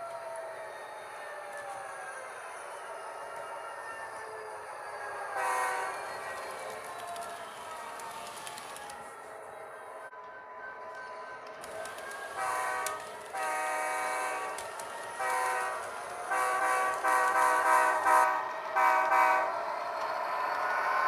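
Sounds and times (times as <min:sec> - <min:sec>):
model train chime horn blasts: 0:12.3 - 0:14.6.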